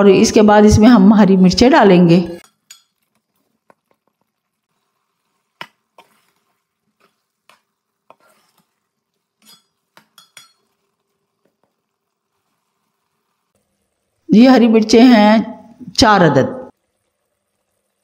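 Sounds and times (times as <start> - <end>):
metal spoon scraping metal pot: 2.4 - 3.2, 5.9 - 10.8.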